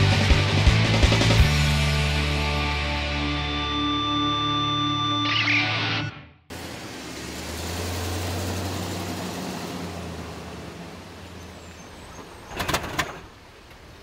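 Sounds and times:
vehicle engine and tyres passing: 6.5s - 14.0s
wheels clunking over rails: 11.6s - 14.0s.

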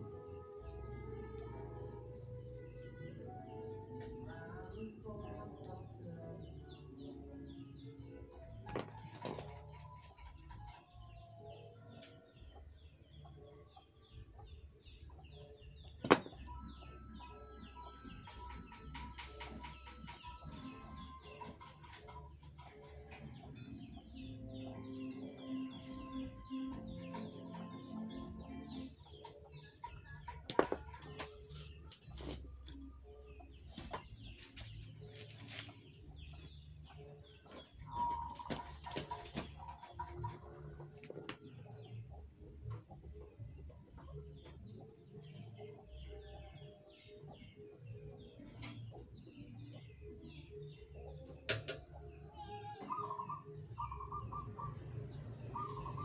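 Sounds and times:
birds chirping and clucking: 0.0s - 56.0s
chickens clucking: 33.3s - 45.8s, 48.2s - 56.0s.

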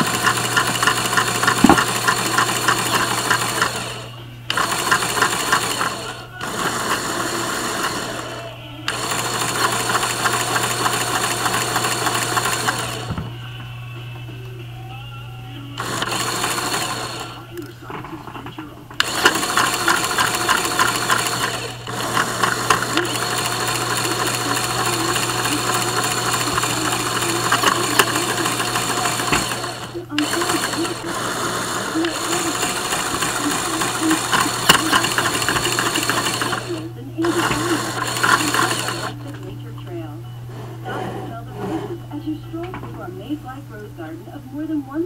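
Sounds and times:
shredder grinding foil: 0.0s - 14.7s, 15.3s - 39.6s.

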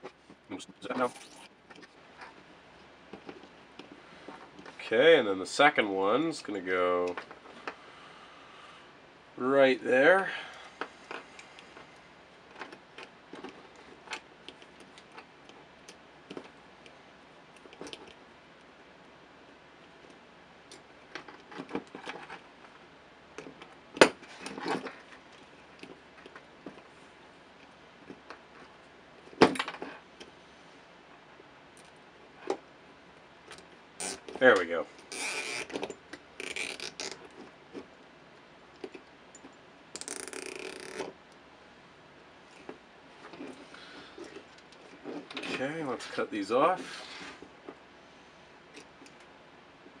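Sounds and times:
zip ties ratcheting: 34.0s - 34.3s, 35.0s - 35.8s, 36.4s - 37.2s, 39.9s - 41.1s.

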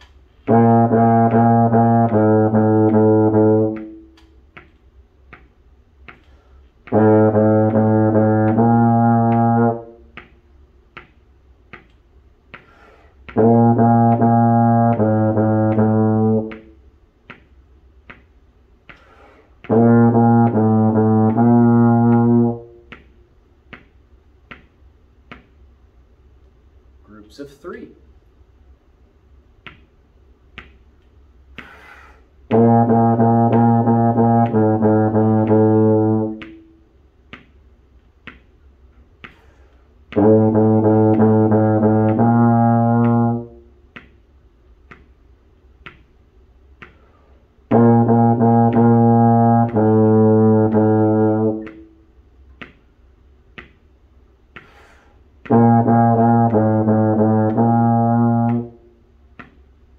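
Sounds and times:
sharp metronome clicks: 0.0s - 25.7s, 32.5s - 59.8s
low brass horn playing: 0.4s - 4.2s, 6.8s - 10.2s, 13.2s - 16.8s, 19.6s - 22.9s, 32.4s - 36.9s, 40.1s - 43.8s, 47.7s - 52.1s, 55.4s - 59.0s.

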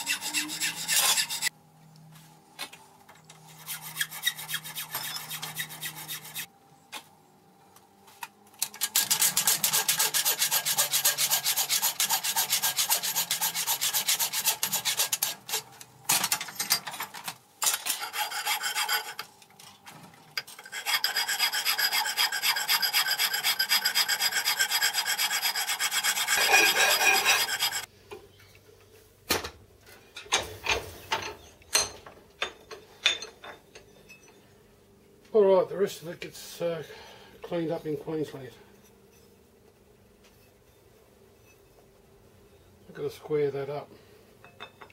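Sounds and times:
file rasping on metal: 0.0s - 1.5s, 3.5s - 6.5s, 8.8s - 15.7s, 17.9s - 19.2s, 20.5s - 27.9s.

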